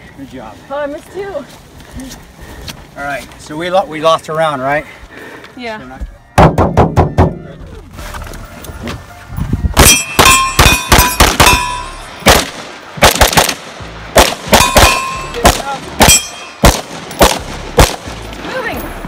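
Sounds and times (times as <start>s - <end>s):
metallic ringing clang: 9.8s - 12.1s, 14.6s - 15.4s, 16.0s - 16.6s
rifle shots: 9.8s - 18.2s.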